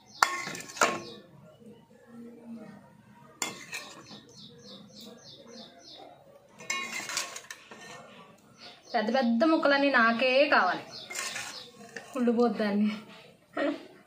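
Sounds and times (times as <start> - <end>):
metal spoon clinking on pot: 0.1 - 1.2, 3.4 - 4.5, 6.6 - 8.1, 10.9 - 12.2
small bird chirping: 3.8 - 6.2, 10.8 - 11.9.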